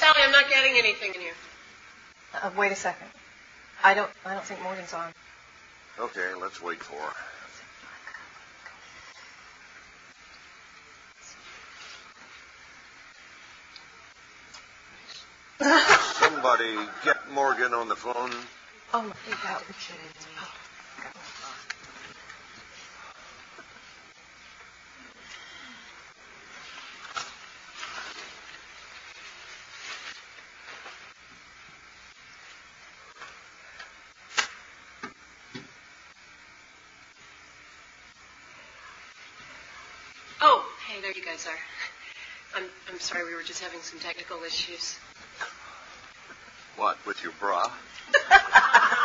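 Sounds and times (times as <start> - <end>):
steady hiss: 0.0 - 49.0
faint rustling and handling noises: 10.2 - 15.3, 18.0 - 34.3.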